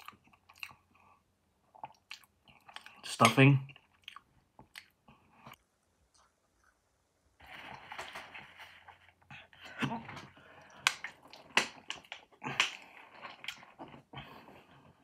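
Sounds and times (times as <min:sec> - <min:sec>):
chewing: 0:00.0 - 0:03.1, 0:03.7 - 0:06.8, 0:10.6 - 0:14.9.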